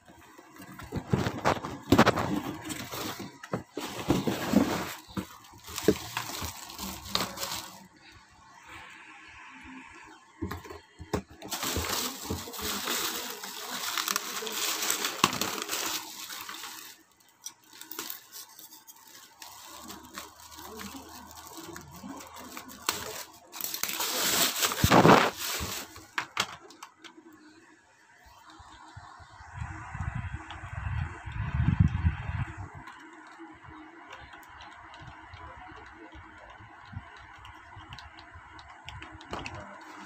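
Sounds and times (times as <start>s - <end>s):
plastic bag crinkling: 0.0s - 8.0s, 11.2s - 27.0s.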